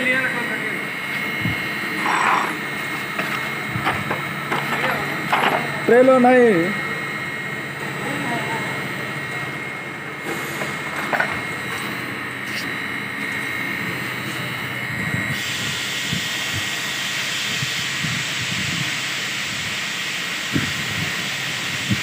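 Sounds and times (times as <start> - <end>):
thin high whine: 0.0 - 3.5
workshop machinery hiss: 0.0 - 7.0, 10.1 - 22.0.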